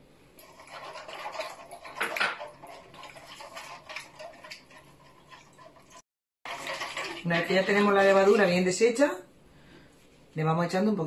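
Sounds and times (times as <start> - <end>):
water splashing: 0.4 - 8.6.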